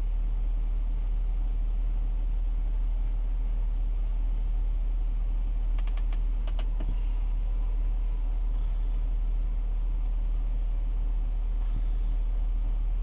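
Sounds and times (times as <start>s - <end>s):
low hum: 0.0s - 13.0s
faint clicks: 5.7s - 7.0s.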